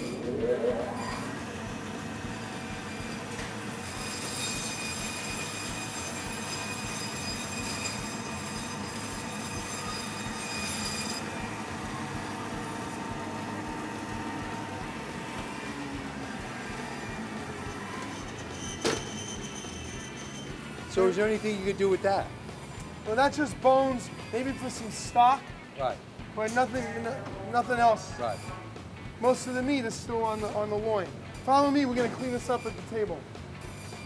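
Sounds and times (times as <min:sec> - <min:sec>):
bandsaw cutting bone: 0:03.0 - 0:14.5.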